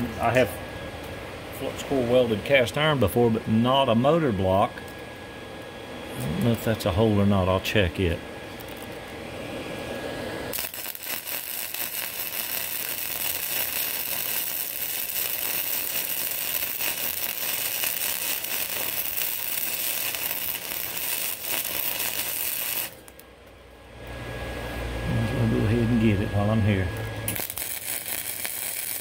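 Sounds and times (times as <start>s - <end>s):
welder arc crackling: 4.5s - 24.3s, 25.7s - 29.0s.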